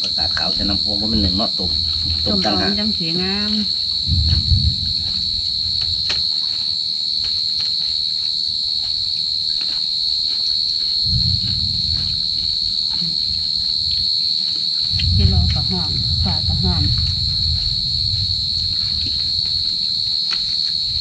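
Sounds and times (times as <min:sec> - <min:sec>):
low muffled rumble: 0:00.0 - 0:06.3, 0:11.1 - 0:14.0, 0:14.9 - 0:20.1
insects chirring: 0:00.0 - 0:21.0.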